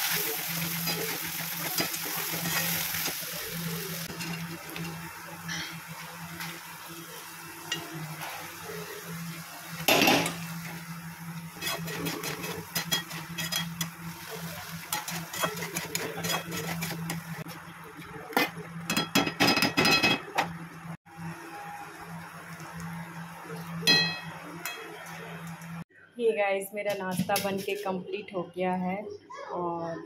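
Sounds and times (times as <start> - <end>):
spatula scraping metal pan: 14.9 - 17.2.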